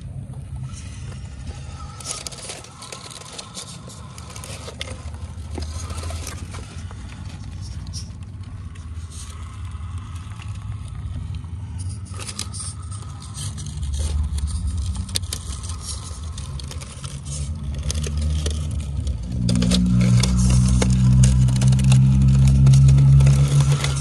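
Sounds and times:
electric motor and gearbox whirring: 0.0s - 24.0s
tires scraping on rock: 0.1s - 24.0s.

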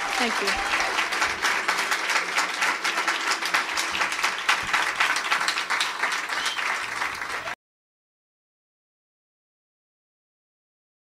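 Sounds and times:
audience applause: 0.0s - 7.6s.

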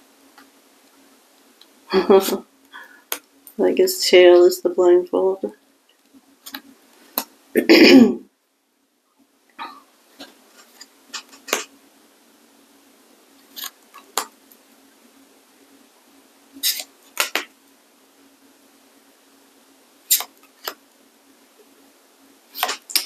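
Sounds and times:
cards snapping and tapping: 16.7s - 17.5s.

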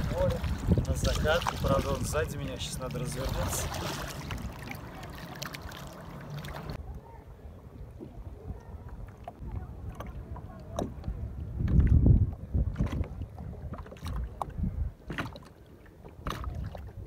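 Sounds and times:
wind buffeting microphone: 0.0s - 5.8s, 6.5s - 15.4s
water lapping and splashing: 0.0s - 17.0s
paddle ticks in water: 8.6s - 16.8s.

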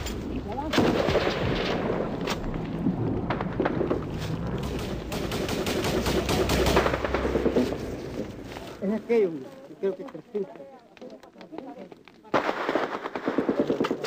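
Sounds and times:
machine-gun fire: 0.7s - 2.3s, 3.2s - 8.1s
rifle shots: 0.7s - 2.5s, 4.6s - 8.0s.

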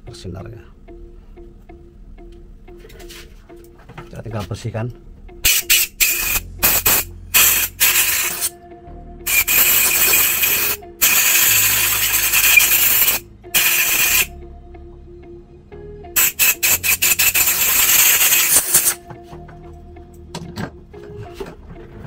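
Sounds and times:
compressed air hissing blasts: 5.4s - 8.5s, 9.3s - 14.3s, 16.2s - 19.0s.

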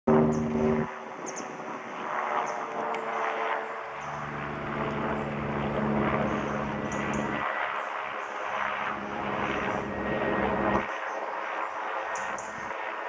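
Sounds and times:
low hum: 0.1s - 7.7s, 8.6s - 10.9s
helicopter rotor and engine: 0.1s - 13.0s.

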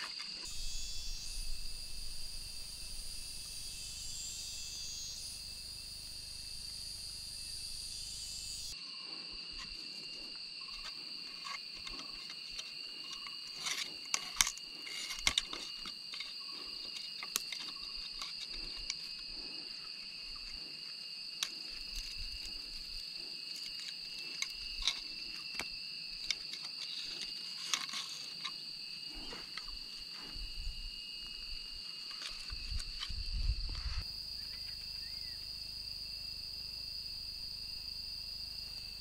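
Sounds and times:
insects droning: 0.0s - 39.0s
bamboo clicks and knocks: 10.7s - 19.2s.

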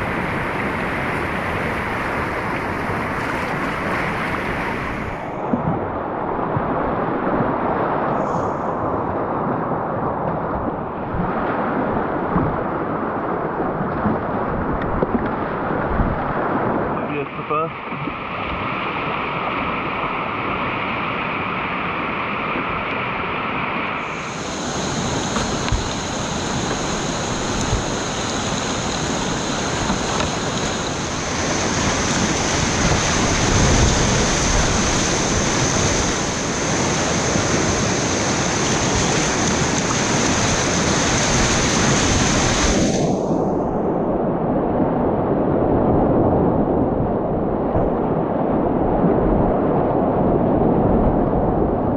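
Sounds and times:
whitewater rapids rushing: 0.0s - 5.6s, 15.3s - 43.6s.

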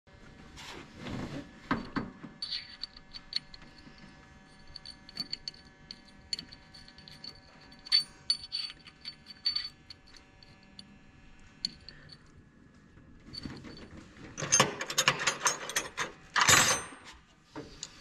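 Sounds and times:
hex key clicking in metal gear: 4.6s - 10.2s.

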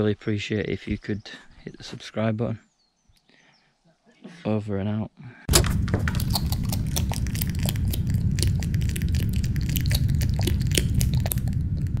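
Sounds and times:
dense crackling and clicking: 5.5s - 12.0s
heavy low rumble: 5.5s - 12.0s.

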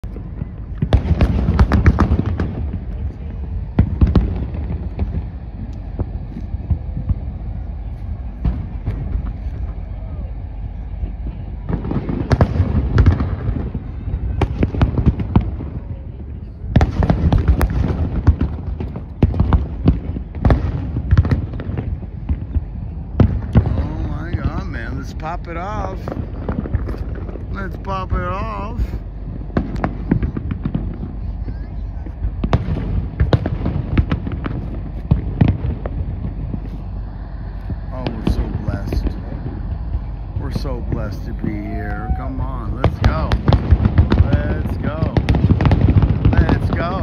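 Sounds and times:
fireworks bangs and crackles: 0.0s - 47.0s
steady low rumble: 0.0s - 47.0s.

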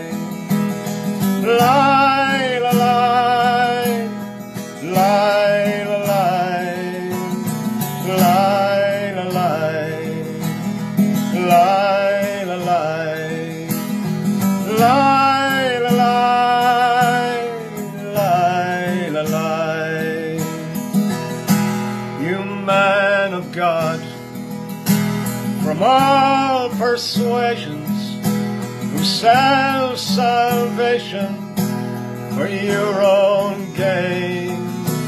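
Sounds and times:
wavering sung melody: 0.0s - 20.4s
strummed acoustic guitar: 0.0s - 35.0s.

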